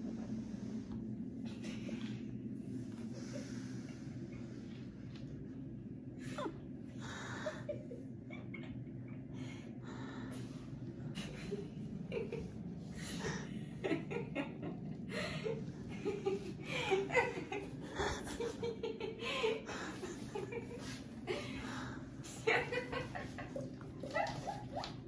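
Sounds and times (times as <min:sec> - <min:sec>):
low hum: 0:00.0 - 0:25.0
people laughing: 0:11.2 - 0:25.0.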